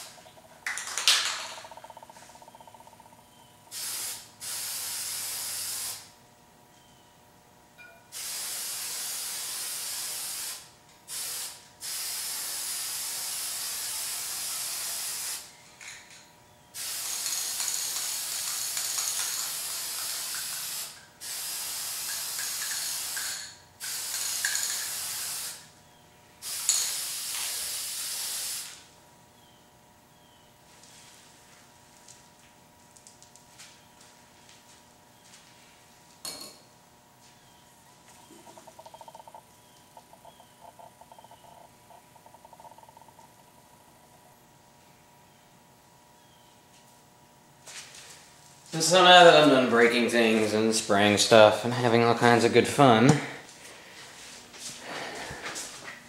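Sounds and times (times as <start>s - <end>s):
spray-paint can hissing: 3.7s - 6.1s, 8.2s - 15.5s, 16.8s - 25.7s, 26.4s - 28.8s.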